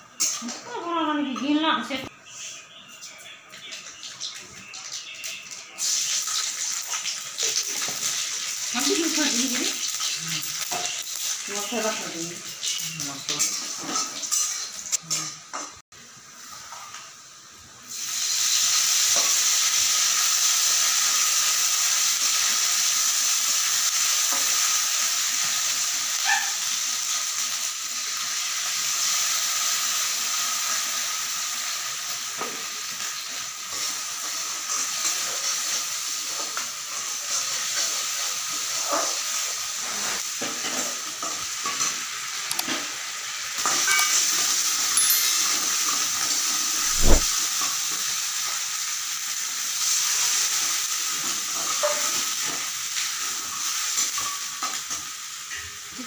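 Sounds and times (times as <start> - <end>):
hot oil sizzling: 0.0 - 56.0.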